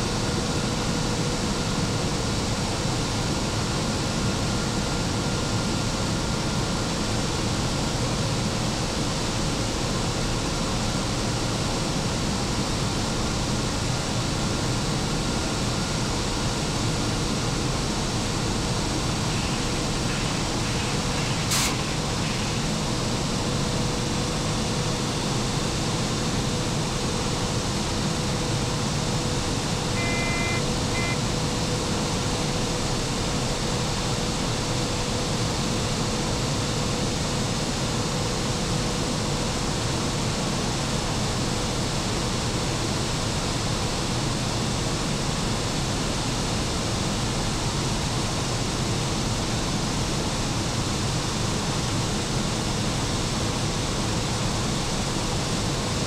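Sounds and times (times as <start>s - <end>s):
steady hum: 17.3s - 35.0s
high double tone: 30.0s - 31.2s.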